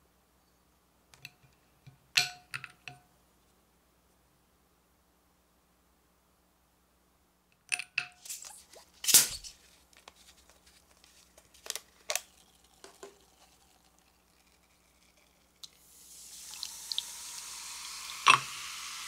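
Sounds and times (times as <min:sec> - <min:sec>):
carbonation hissing: 0:11.2 - 0:19.0.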